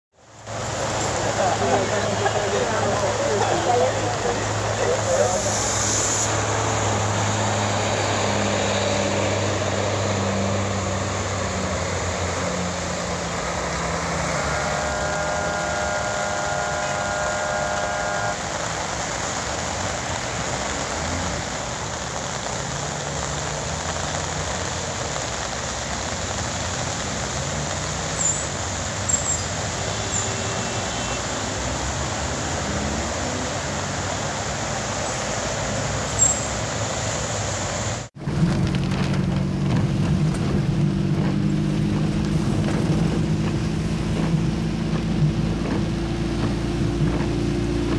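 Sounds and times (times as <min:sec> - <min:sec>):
tyres hissing on wet road: 0:00.1 - 0:47.9
vehicle engines passing: 0:00.2 - 0:47.9
steady multi-pitch tone: 0:13.6 - 0:18.8.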